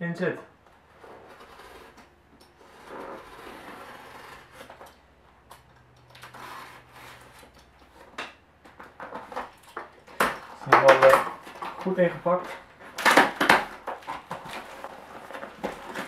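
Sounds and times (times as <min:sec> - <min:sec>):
fingernails scratching cardboard box: 0:01.0 - 0:04.8, 0:06.3 - 0:07.5.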